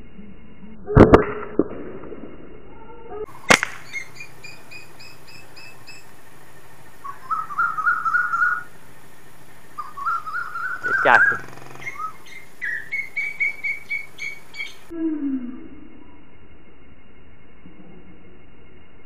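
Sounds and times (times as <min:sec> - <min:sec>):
birds chirping: 0:03.3 - 0:14.9
slingshot rubber bands cracking: 0:03.5 - 0:03.9.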